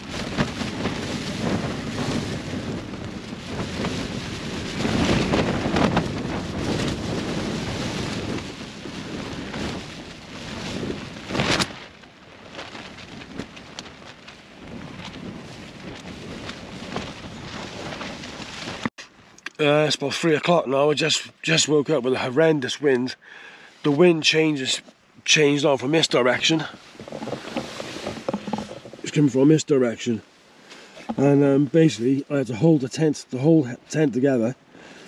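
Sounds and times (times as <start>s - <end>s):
wind gusts battering tent fabric: 0.0s - 18.9s, 23.7s - 35.0s.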